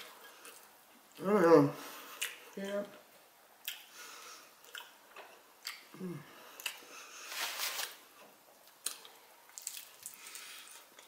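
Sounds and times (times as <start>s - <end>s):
crunching of taco shell: 8.8s - 11.0s.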